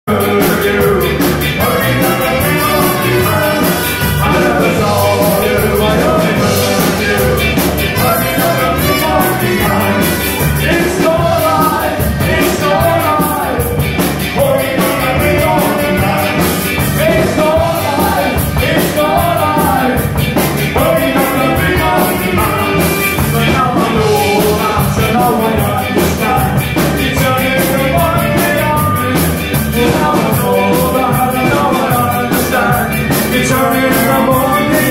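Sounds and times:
man singing: 0:00.0 - 0:34.9
ska band playing: 0:00.1 - 0:34.9
tenor saxophone playing: 0:02.0 - 0:04.7, 0:08.0 - 0:10.8.

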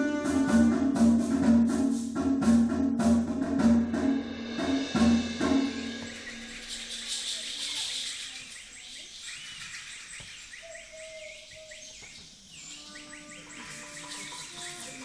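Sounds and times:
wind band held notes: 0:00.0 - 0:02.2
wind band bird-like chirps: 0:05.4 - 0:15.0
hiss: 0:06.0 - 0:10.3.

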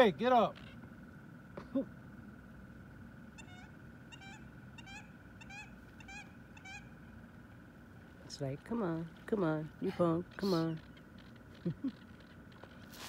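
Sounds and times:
geese honking: 0:03.3 - 0:07.7.

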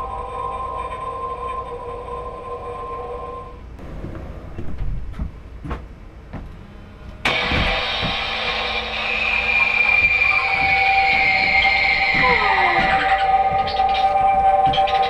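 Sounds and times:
footsteps or knocks: 0:03.8 - 0:06.6, 0:07.2 - 0:08.5, 0:10.0 - 0:15.0
loud electronic high tone: 0:06.6 - 0:15.0.

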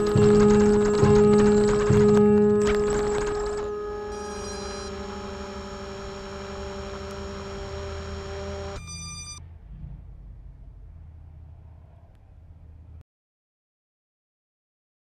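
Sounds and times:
brief high glitch: 0:00.0 - 0:09.4
faint low hum: 0:00.0 - 0:13.0
hum with held tones: 0:00.0 - 0:13.0.

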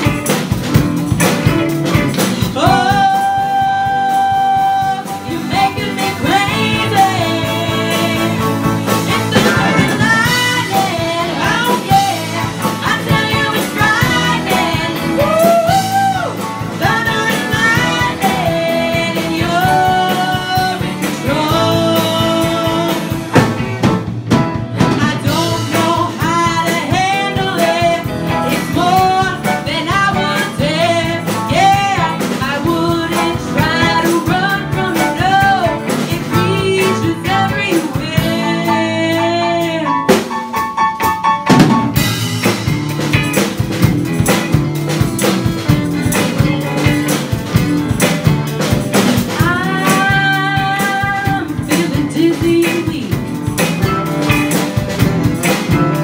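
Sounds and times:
drums: 0:00.0 - 0:56.0
guitars: 0:00.0 - 0:56.0
keyboard: 0:00.0 - 0:56.0
women singing: 0:02.4 - 0:23.4, 0:24.8 - 0:40.1, 0:49.2 - 0:53.3.

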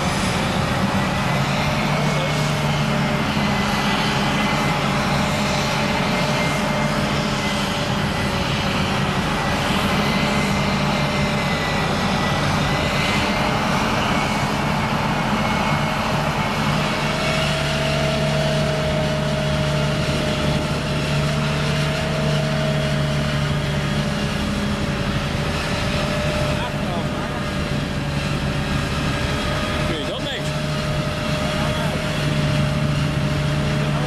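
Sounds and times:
diesel engines droning: 0:00.0 - 0:34.0.

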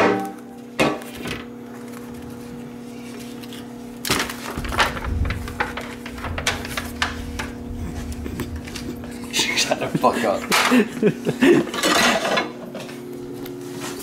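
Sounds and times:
steady electrical hum: 0:00.0 - 0:14.0
foil pan crinkling and clattering: 0:03.1 - 0:10.8.

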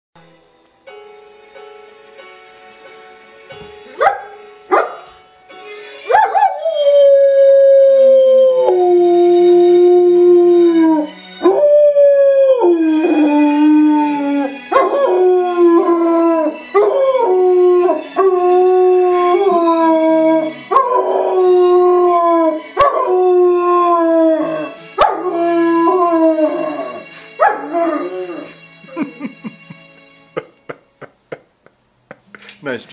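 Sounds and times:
television theme music: 0:00.2 - 0:32.9
dog howling: 0:06.1 - 0:28.6.

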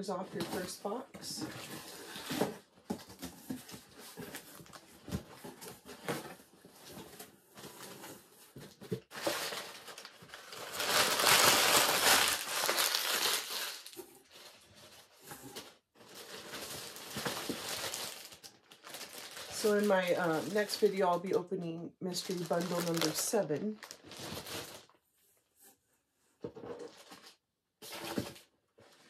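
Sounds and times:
packing paper crinkling: 0:09.0 - 0:21.4, 0:22.1 - 0:25.0.

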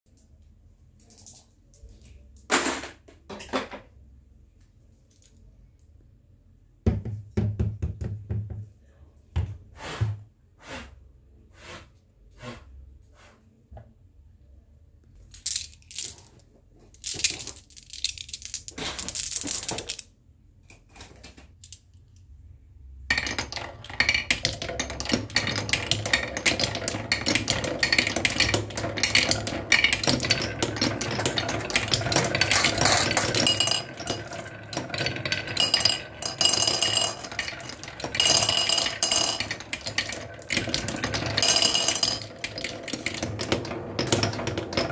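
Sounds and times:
marbles rolling down wooden run: 0:17.0 - 0:20.1, 0:23.1 - 0:44.9.

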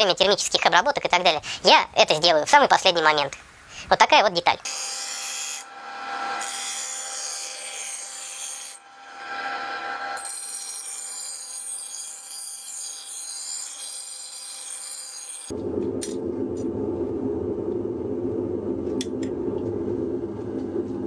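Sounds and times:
bench grinder hum: 0:04.6 - 0:15.6.

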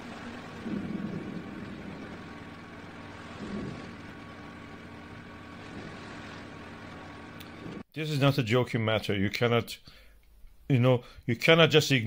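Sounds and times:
volcano eruption rumble: 0:00.0 - 0:07.8.

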